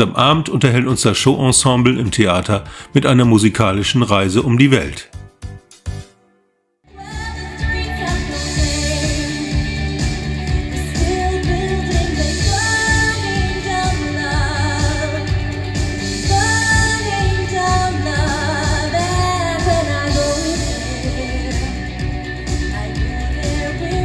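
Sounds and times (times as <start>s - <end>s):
pop music accompaniment: 0.0s - 6.1s, 6.9s - 24.0s
woman singing into a microphone: 6.9s - 15.6s, 16.2s - 22.0s, 22.6s - 24.0s.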